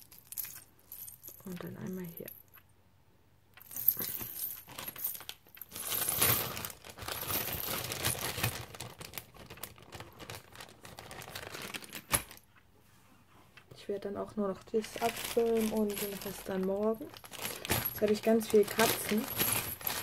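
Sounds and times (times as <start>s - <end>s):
keys clinking and jangling: 0.0s - 2.6s, 3.6s - 7.9s
rustling: 3.6s - 13.7s, 14.8s - 20.0s.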